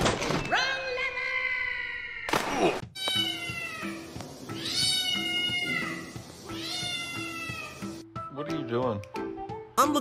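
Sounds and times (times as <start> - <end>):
cat meowing: 2.9 - 7.8
background music with light beat: 3.0 - 10.0.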